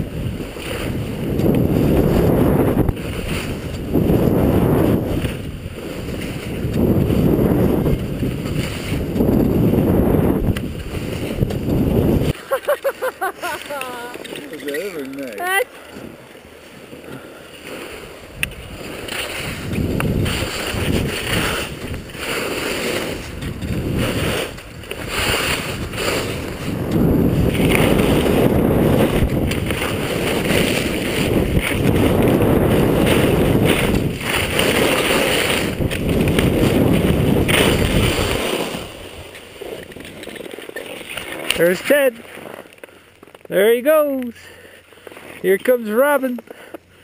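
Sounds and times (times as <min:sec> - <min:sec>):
wind rushing over microphone: 0:00.0 - 0:12.4, 0:17.9 - 0:40.3
skis hissing on snow: 0:17.6 - 0:26.6, 0:36.5 - 0:39.8.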